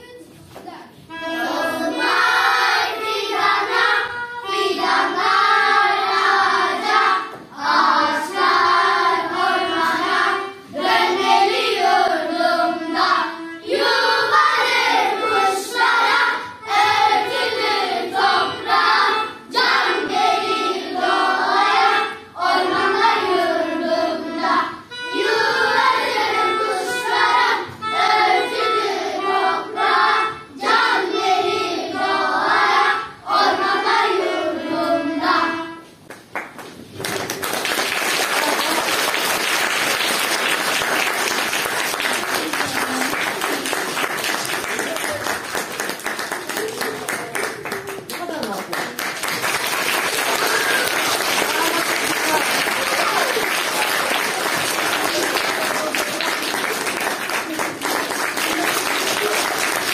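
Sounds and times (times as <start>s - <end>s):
young children singing: 0.8s - 36.0s, 49.2s - 59.9s.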